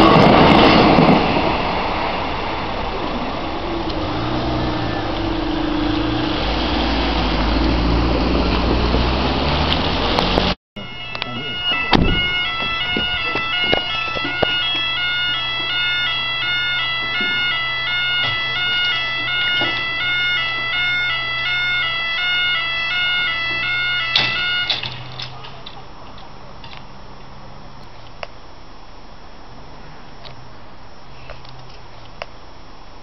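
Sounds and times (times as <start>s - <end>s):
level crossing two-tone alarm: 10.8s - 24.9s.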